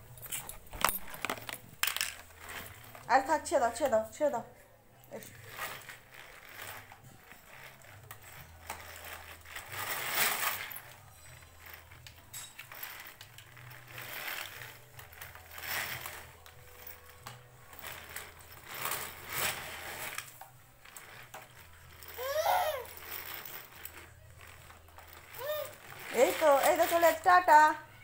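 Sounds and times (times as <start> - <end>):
baby walker wheels rolling and rattling: 0.0 - 28.0
plastic frame clattering: 0.3 - 3.1.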